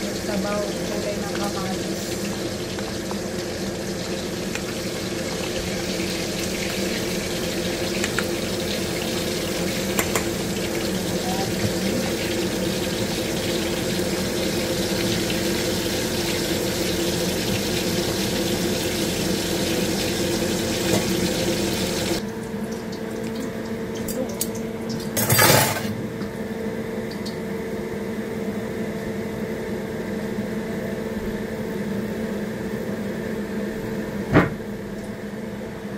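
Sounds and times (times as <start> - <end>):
kitchen noise hiss: 0.0 - 22.2.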